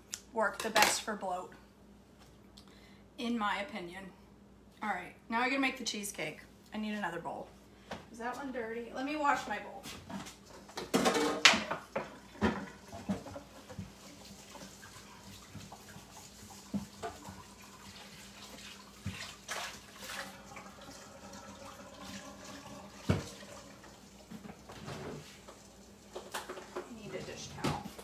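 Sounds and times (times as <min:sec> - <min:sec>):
faucet running into metal sink: 0:14.1 - 0:24.3.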